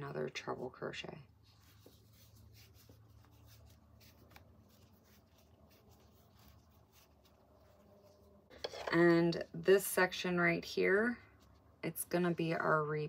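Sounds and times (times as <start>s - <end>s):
crochet hook rustling and ticking: 1.4s - 9.7s.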